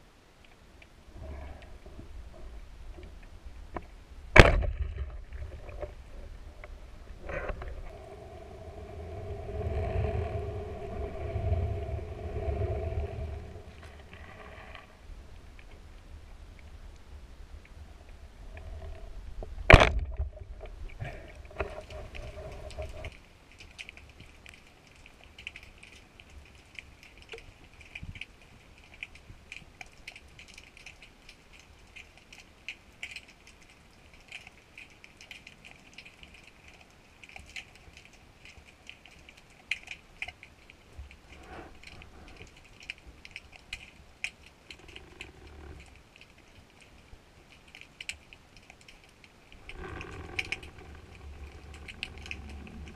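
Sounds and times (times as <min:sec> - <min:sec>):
underwater crackle of clicks: 0:00.4 - 0:52.9
low rumble: 0:01.0 - 0:23.1, 0:49.6 - 0:52.9.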